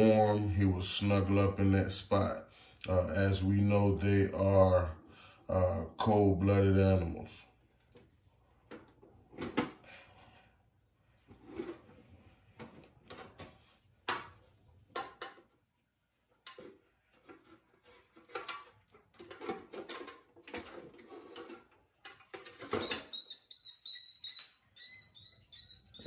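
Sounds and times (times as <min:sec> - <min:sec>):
hard objects knocking and clattering: 0:12.5 - 0:15.6, 0:16.5 - 0:23.1.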